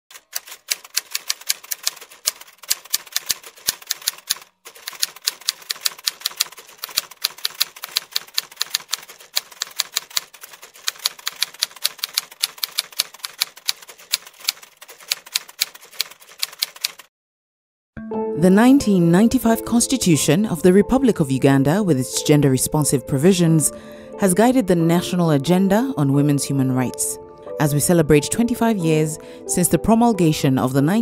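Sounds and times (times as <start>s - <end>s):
typewriter key clacks: 0.1s - 17.1s.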